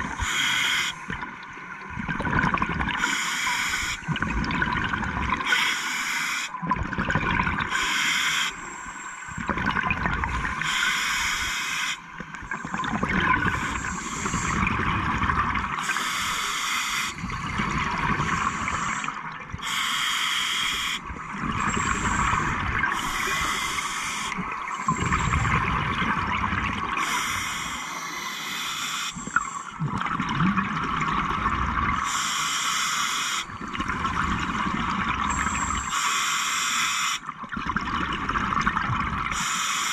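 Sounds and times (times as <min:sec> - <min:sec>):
regulator hiss on inhale: 0:00.1 - 0:01.1, 0:03.0 - 0:04.1, 0:05.5 - 0:06.6, 0:07.7 - 0:09.4, 0:10.6 - 0:12.1, 0:13.5 - 0:14.7, 0:15.8 - 0:17.5, 0:18.2 - 0:21.0, 0:21.6 - 0:25.4, 0:27.0 - 0:29.8, 0:32.0 - 0:33.7, 0:35.3 - 0:37.2, 0:39.3 - 0:39.9
exhaled bubbles rushing: 0:01.1 - 0:03.0, 0:04.1 - 0:05.5, 0:06.6 - 0:07.7, 0:09.4 - 0:10.8, 0:12.1 - 0:16.0, 0:17.2 - 0:19.6, 0:21.0 - 0:23.6, 0:24.2 - 0:27.0, 0:29.2 - 0:32.0, 0:33.5 - 0:35.9, 0:37.3 - 0:39.3.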